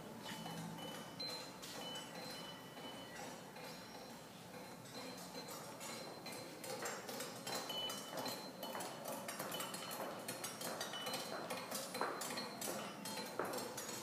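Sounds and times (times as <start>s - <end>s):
high ringing tone: 0.2s - 6.6s
light clinks and taps: 0.2s - 14.0s.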